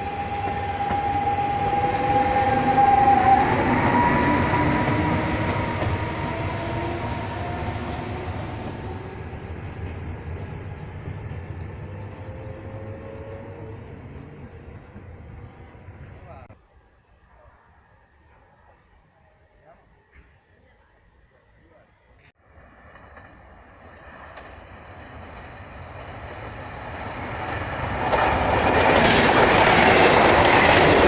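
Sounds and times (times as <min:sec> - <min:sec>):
train motor whine: 0:00.0 - 0:16.0
train wheels rumbling on rails: 0:00.0 - 0:16.5, 0:22.6 - 0:31.0.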